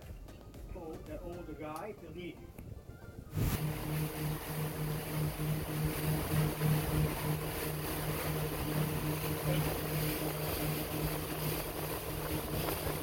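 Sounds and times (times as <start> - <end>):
wind: 0.0 - 13.0
boat engine humming: 3.3 - 13.0
water rushing against hull: 3.3 - 13.0.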